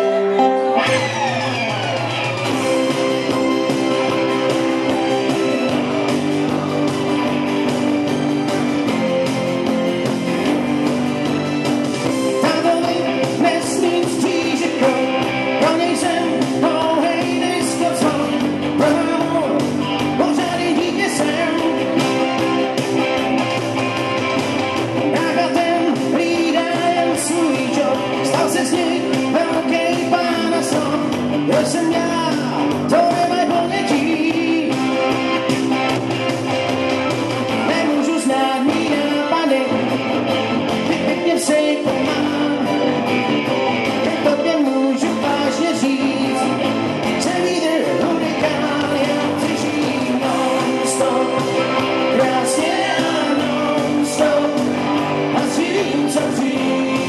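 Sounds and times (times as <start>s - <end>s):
man singing: 0.0s - 2.0s, 12.1s - 22.6s, 25.0s - 35.6s, 37.5s - 40.1s, 40.7s - 57.0s
rock band playing: 0.0s - 57.0s.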